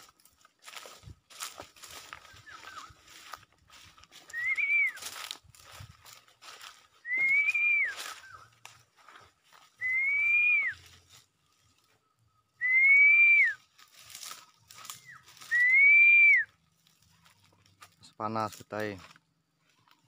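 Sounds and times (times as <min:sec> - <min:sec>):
long whistled notes: 0:04.1 - 0:05.3, 0:06.9 - 0:08.5, 0:09.6 - 0:11.2, 0:12.3 - 0:16.6.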